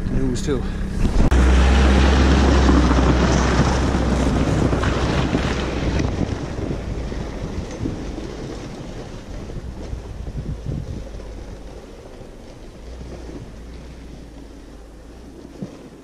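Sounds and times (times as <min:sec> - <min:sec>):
snowmobile engine running: 0:00.0 - 0:16.0
wind buffeting microphone: 0:00.0 - 0:16.0.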